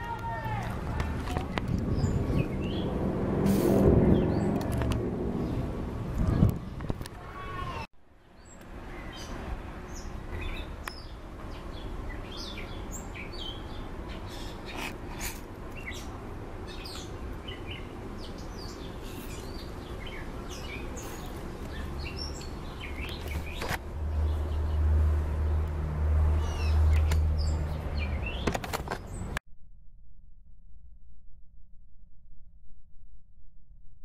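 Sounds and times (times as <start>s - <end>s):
wild birds chirping: 0.0s - 3.1s, 3.9s - 4.8s, 6.6s - 29.4s
low rumble: 0.6s - 7.0s.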